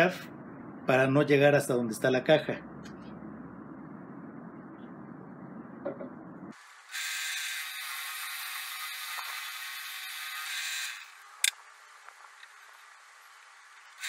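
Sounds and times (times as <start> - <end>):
drill press motor running: 6.8 - 11.5.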